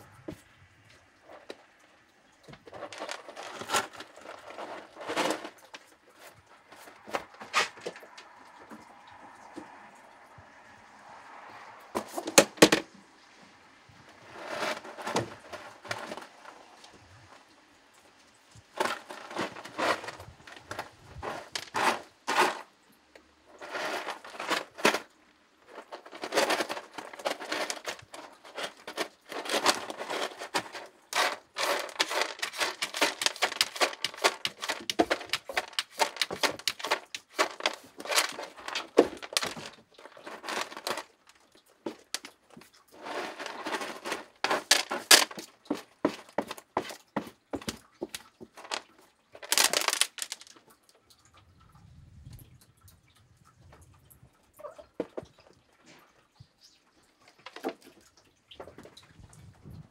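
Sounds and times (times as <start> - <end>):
cat paws scraping litter: 2.5 - 9.9, 14.1 - 17.4, 18.6 - 22.8, 23.5 - 50.5.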